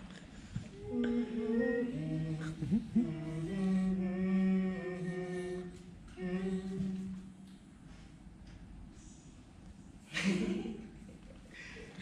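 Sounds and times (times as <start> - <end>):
person singing unaccompanied: 0.7 - 7.3.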